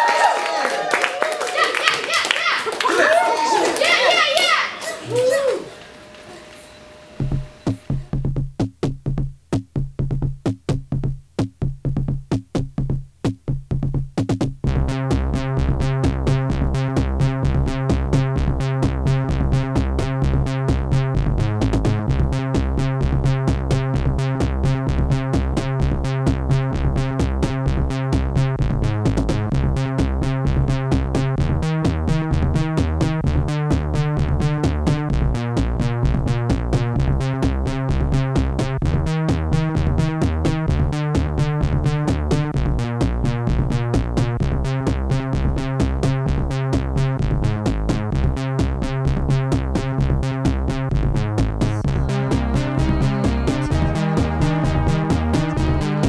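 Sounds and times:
drum machine beat: 3.8s - 56.0s
synthesizer bass and chords: 14.6s - 56.0s.

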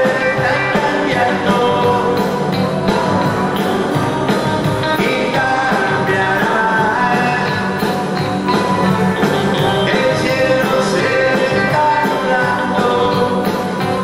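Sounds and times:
man singing into microphone: 0.0s - 3.0s, 5.0s - 8.0s, 9.8s - 14.0s
drums playing: 0.0s - 14.0s
electric guitars: 0.0s - 14.0s.

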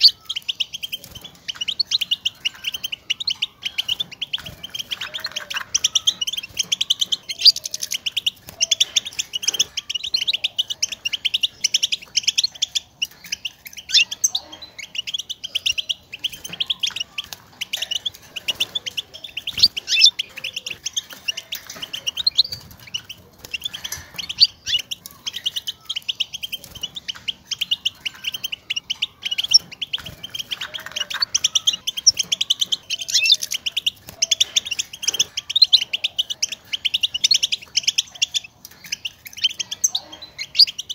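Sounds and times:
goldfinch twittering: 0.0s - 40.9s.

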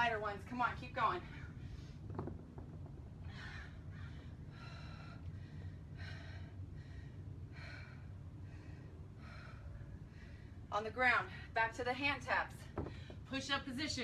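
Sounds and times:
low background rumble: 0.0s - 14.0s
woman breathing hard: 3.2s - 10.7s.

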